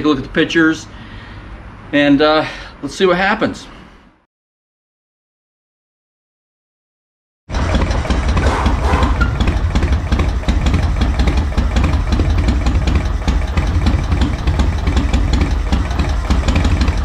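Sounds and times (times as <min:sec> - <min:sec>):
motorcycle engine idling: 0:07.5 - 0:17.0.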